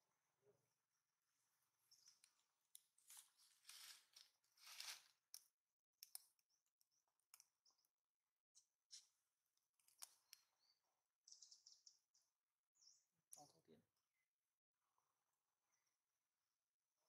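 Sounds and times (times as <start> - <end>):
faint scratchy rustling: 3.0 - 5.1.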